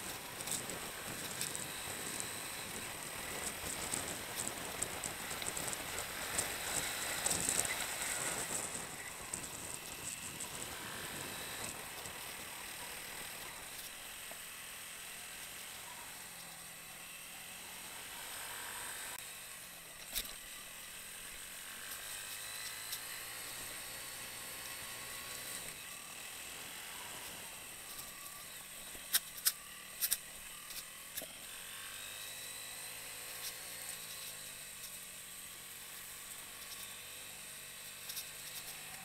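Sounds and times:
motorcycle rattling over bumps: 0:00.0 - 0:14.6
motorcycle engine running: 0:00.0 - 0:39.0.

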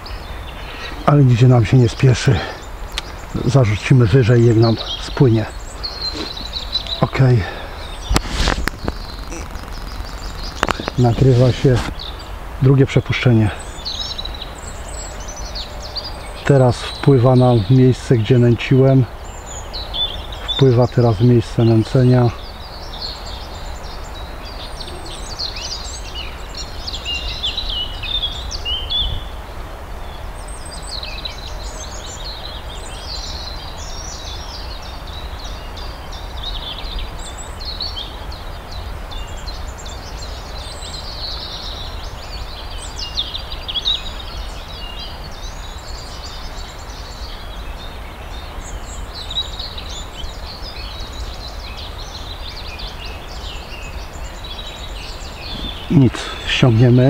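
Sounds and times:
songbirds chirping: 0:00.0 - 0:57.0.

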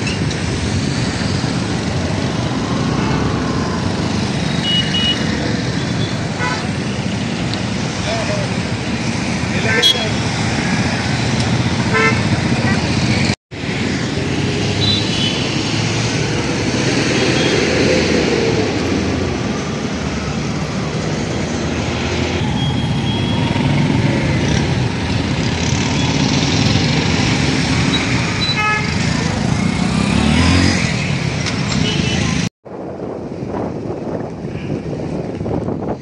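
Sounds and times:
vehicles driving past: 0:00.0 - 0:36.0.

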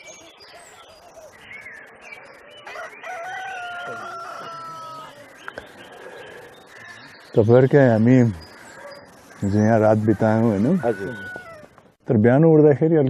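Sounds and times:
rooster crowing: 0:02.5 - 0:07.1, 0:08.4 - 0:11.8.

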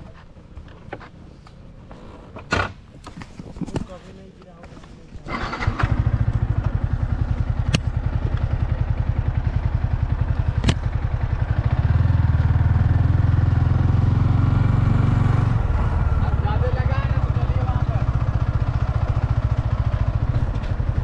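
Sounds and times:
motorcycle engine running: 0:05.3 - 0:21.0.

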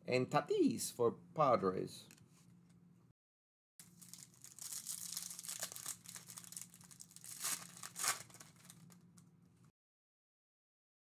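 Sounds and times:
foil wrapper tearing and crinkling: 0:03.8 - 0:09.0.

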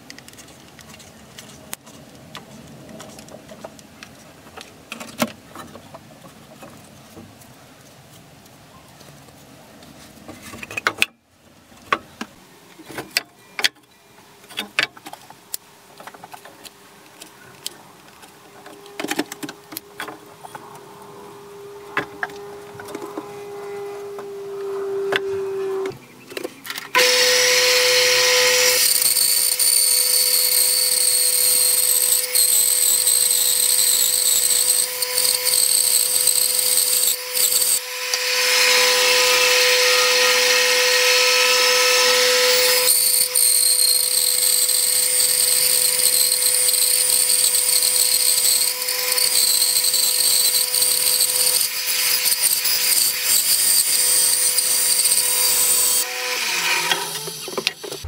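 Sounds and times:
bandsaw motor hum: 0:26.9 - 0:58.0
saw blade cutting wood: 0:26.9 - 0:58.0.

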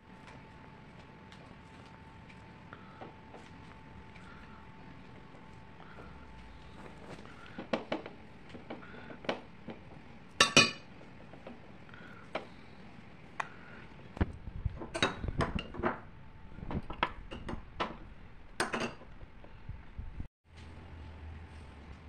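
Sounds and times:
utensils clinking on plates: 0:10.4 - 0:10.9, 0:14.8 - 0:16.0, 0:18.6 - 0:19.1.

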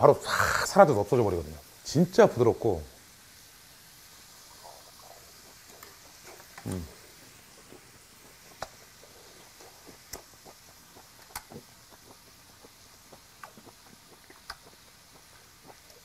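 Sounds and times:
close chewing with wet mouth clicks: 0:04.5 - 0:16.0.

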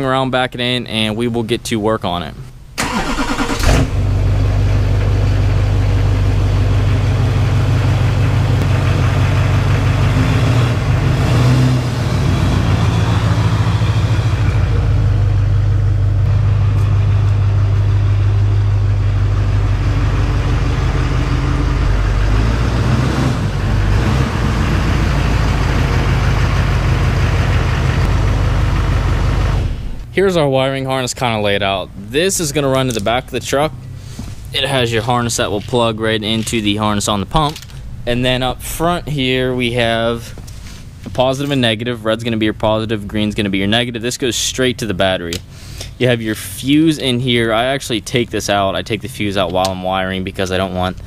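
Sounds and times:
diesel truck engine running: 0:02.8 - 0:30.1.

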